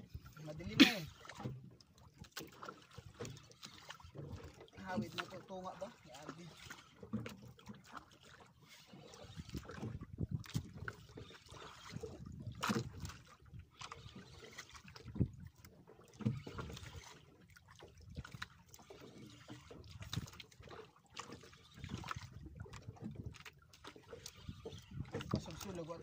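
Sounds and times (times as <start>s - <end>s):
water sloshing against boat hull: 0.0s - 26.0s
boat knocks and bumps: 9.5s - 13.6s, 14.9s - 16.9s, 19.6s - 24.0s, 24.6s - 26.0s.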